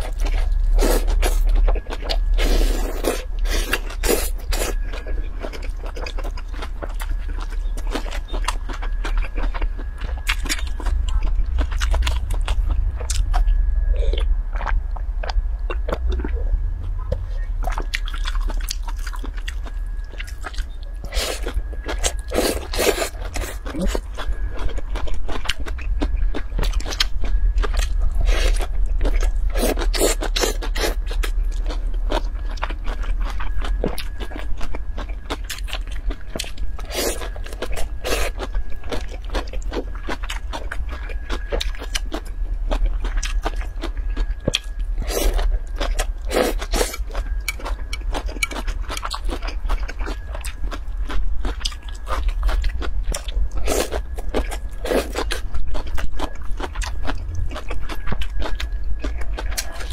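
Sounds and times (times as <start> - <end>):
low steady hum: 0.0 - 59.9
wet chewing and slurping: 17.6 - 59.9.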